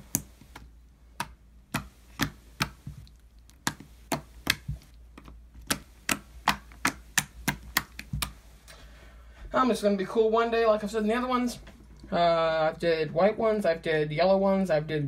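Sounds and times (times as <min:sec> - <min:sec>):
finger poking slime: 0:00.0 - 0:08.4.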